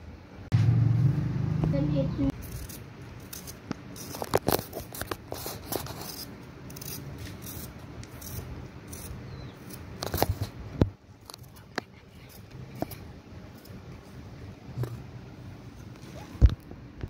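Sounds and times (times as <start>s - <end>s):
vegetable peeler scraping potato: 2.4s - 10.6s.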